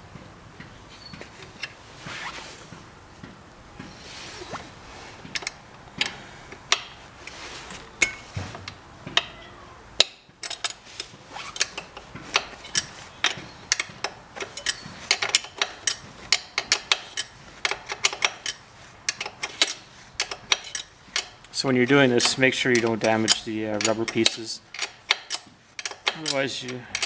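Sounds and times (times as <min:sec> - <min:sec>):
metal tool clicking on brake caliper: 0:10.0 - 0:21.5, 0:22.1 - 0:27.0.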